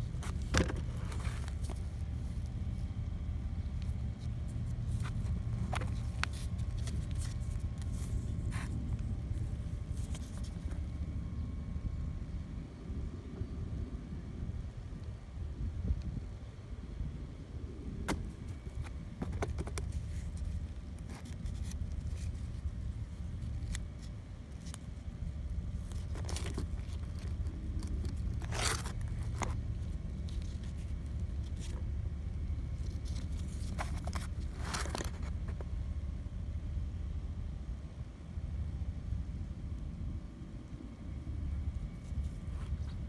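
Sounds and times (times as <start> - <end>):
parts scraping: 0.0 - 2.9, 25.7 - 31.8.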